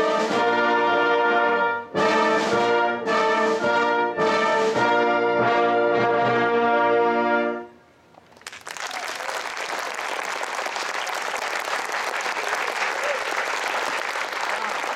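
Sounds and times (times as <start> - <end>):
audience applauding: 8.3 - 14.9.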